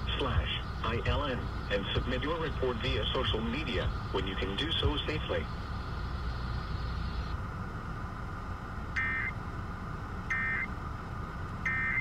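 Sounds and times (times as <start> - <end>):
warbling data bursts over radio: 0.0 - 7.4.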